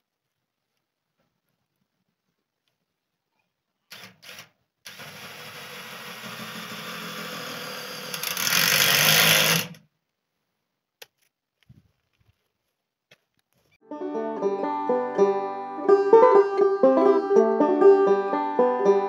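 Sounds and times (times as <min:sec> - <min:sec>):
cordless drill into metal sheet: 0:03.9 - 0:09.8.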